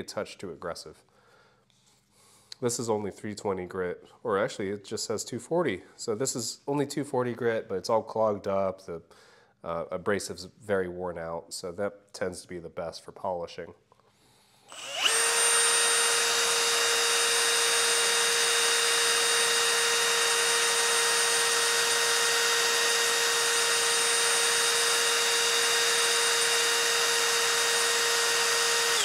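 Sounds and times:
electric drill whining: 0:14.7 - 0:29.0.

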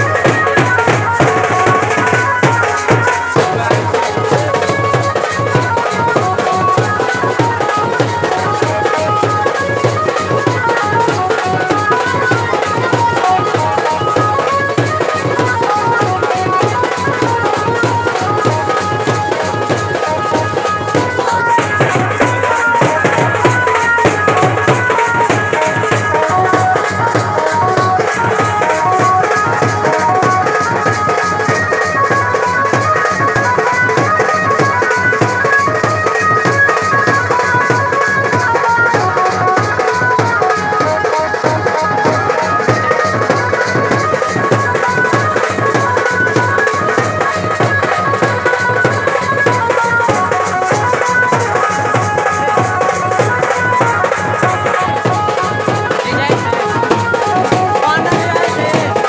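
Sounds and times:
drums beaten with sticks: 0:00.0 - 0:59.0.

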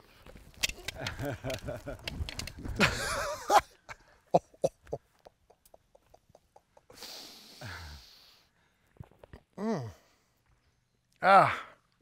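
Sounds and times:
man breathing hard: 0:06.9 - 0:08.9
man groaning: 0:09.6 - 0:10.0.

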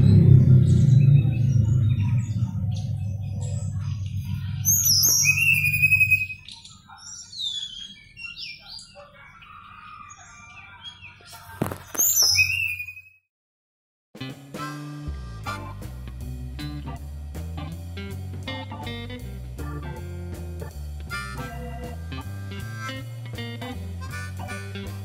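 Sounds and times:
songbird singing: 0:00.0 - 0:13.0
background music: 0:14.2 - 0:25.0.

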